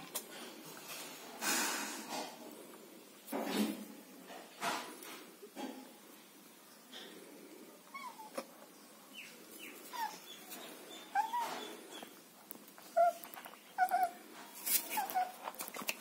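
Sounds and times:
puppies whimpering: 7.9s - 8.4s, 9.8s - 12.2s, 12.8s - 14.2s, 14.9s - 15.4s.

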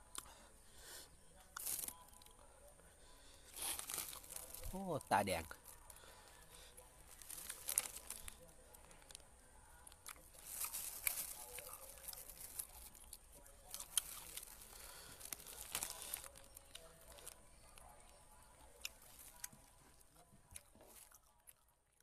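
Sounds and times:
plastic bag crinkling: 1.6s - 2.0s, 3.6s - 5.0s, 7.1s - 9.2s, 10.4s - 13.0s, 13.7s - 17.4s.

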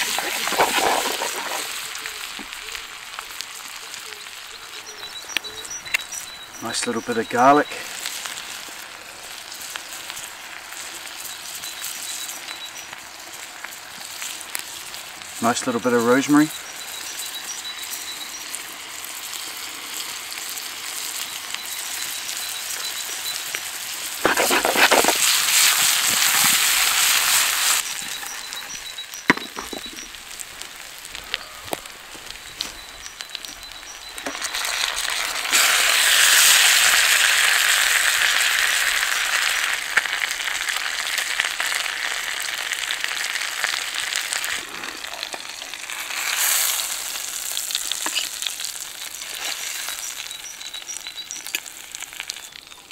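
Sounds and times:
potatoes sizzling in a frying pan: 0.0s - 52.9s.

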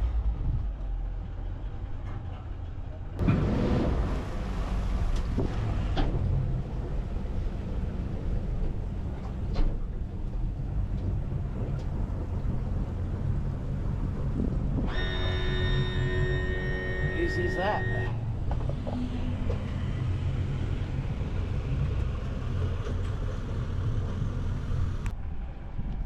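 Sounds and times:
wind buffeting microphone: 3.2s - 14.9s, 18.3s - 26.0s.

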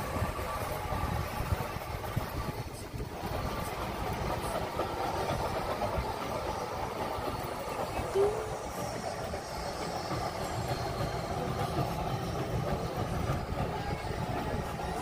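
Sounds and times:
wind buffeting microphone: 0.0s - 7.8s
short high tone: 8.1s - 8.7s.

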